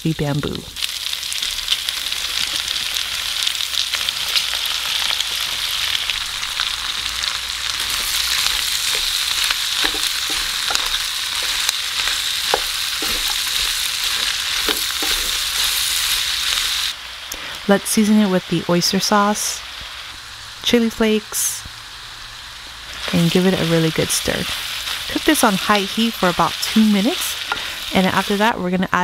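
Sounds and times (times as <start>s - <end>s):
food sizzling in a frying pan: 0.1s - 29.0s
spatula scraping and tapping pan: 7.8s - 15.8s, 27.4s - 27.8s.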